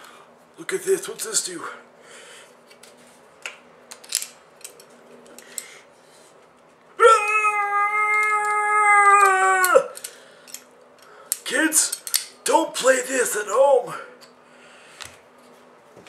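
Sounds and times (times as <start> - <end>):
man yelling high-pitched: 7.0 - 10.0, 11.5 - 11.9, 12.5 - 14.1
metal tools clicking: 9.6 - 12.4.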